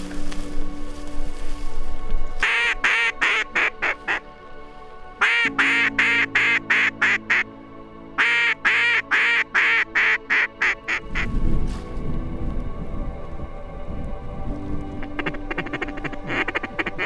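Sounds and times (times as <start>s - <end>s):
low musical drone: 0.0s - 17.0s
duck call quacks: 2.4s - 4.2s, 8.2s - 11.3s, 15.2s - 17.0s.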